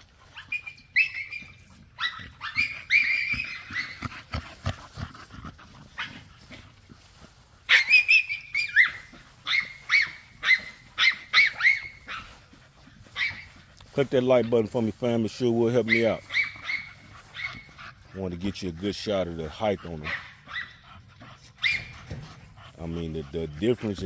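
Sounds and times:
dog whining and yelping: 0.3s - 4.4s, 7.7s - 12.3s, 13.2s - 13.5s, 15.9s - 17.7s, 20.0s - 22.2s.

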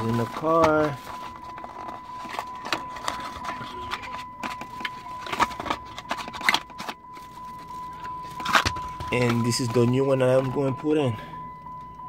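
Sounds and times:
cardboard and plastic rustling: 0.0s - 11.0s
faint high tone: 1.6s - 6.3s.

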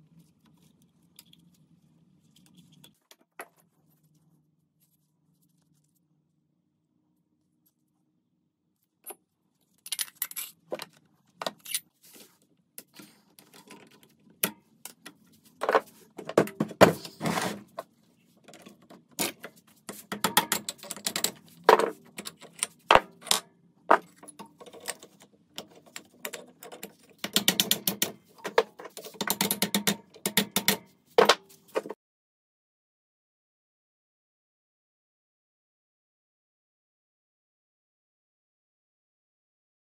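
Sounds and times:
metal tools clinking and knocking: 9.8s - 10.6s.

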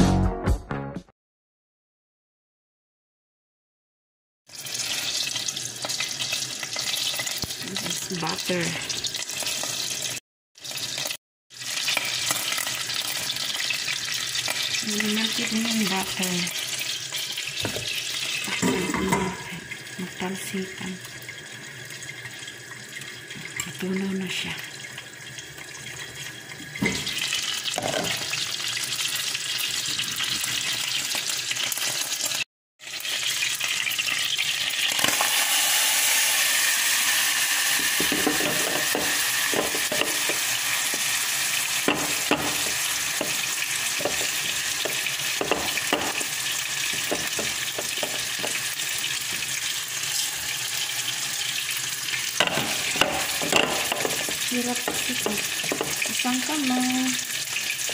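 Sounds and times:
rice sizzling in butter: 4.5s - 57.9s
stirring scrapes and taps: 41.9s - 46.3s, 46.9s - 48.7s, 52.4s - 56.2s.

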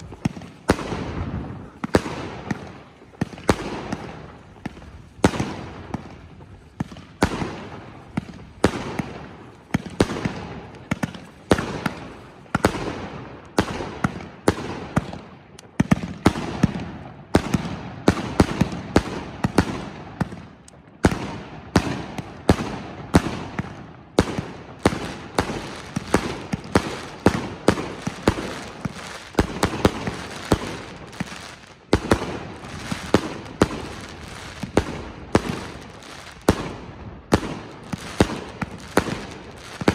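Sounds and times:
firework crackle: 0.0s - 39.9s.

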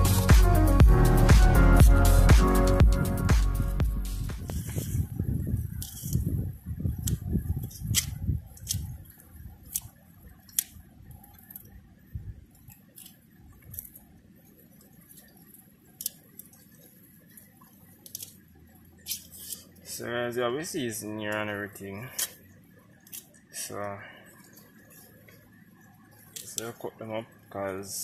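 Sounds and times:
low thudding: 0.0s - 8.4s
faint background hiss: 0.0s - 28.0s
knife clicking and snipping: 7.0s - 8.9s, 10.5s - 10.8s.

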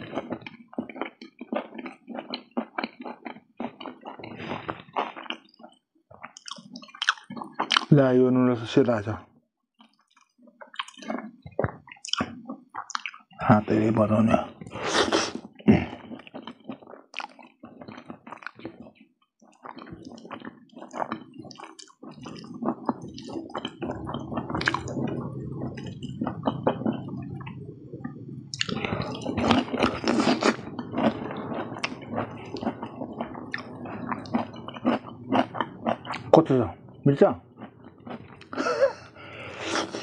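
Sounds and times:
chewing noodles: 0.0s - 8.1s, 9.8s - 40.0s
mouth clicks and crackles: 0.0s - 8.1s, 9.8s - 40.0s.

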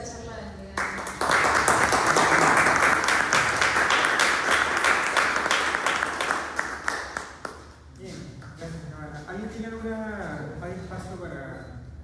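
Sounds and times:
audience applauding: 0.8s - 7.8s.

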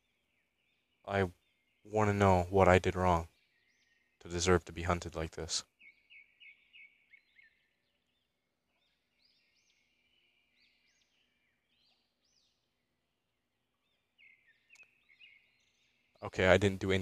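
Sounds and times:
faint bird chirps: 0.0s - 17.0s.

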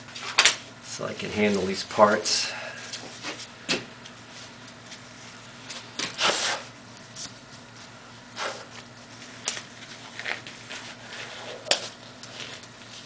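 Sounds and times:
low electrical hum: 0.0s - 13.0s
gloves rustling: 2.8s - 13.0s.

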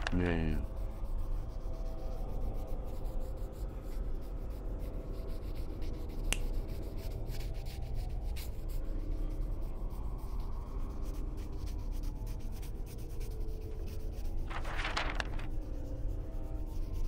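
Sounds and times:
paper rustling: 0.0s - 0.3s, 14.3s - 15.8s
low steady hum: 4.3s - 17.0s.

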